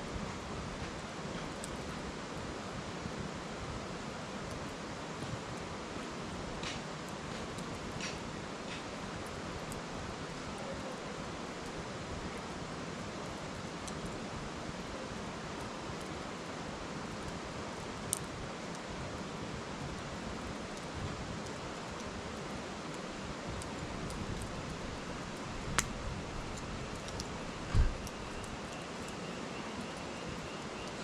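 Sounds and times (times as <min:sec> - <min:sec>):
wood fire popping: 0:06.2 - 0:12.7, 0:17.0 - 0:31.0
faint ticks: 0:25.7 - 0:25.9.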